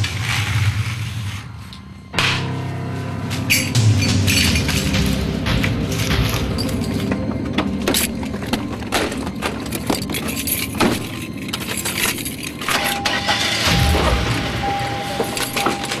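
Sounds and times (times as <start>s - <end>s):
background music: 0.0s - 16.0s
car keys jangling: 6.4s - 13.7s, 15.2s - 16.0s.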